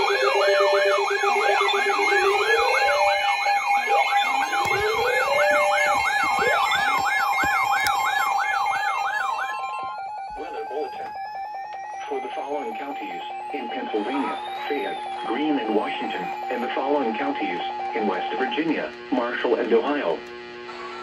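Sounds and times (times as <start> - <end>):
steady alert tones: 0.0 - 18.9
wailing siren: 0.0 - 19.3
rising chirps: 11.2 - 16.8.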